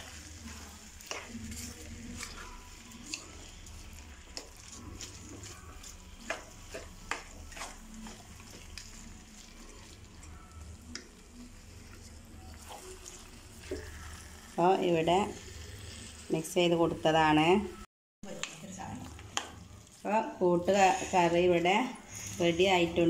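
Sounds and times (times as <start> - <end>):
spoon stirring thick curry: 0.0 - 14.6
faint sizzle: 0.0 - 23.0.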